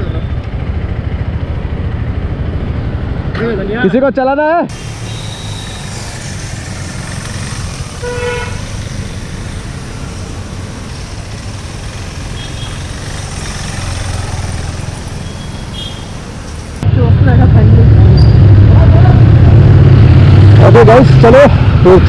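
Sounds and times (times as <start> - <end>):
road traffic rumble: 0.0 - 22.0
vehicle horn toot: 5.0 - 5.8, 8.0 - 8.7, 12.4 - 12.8, 15.2 - 16.1.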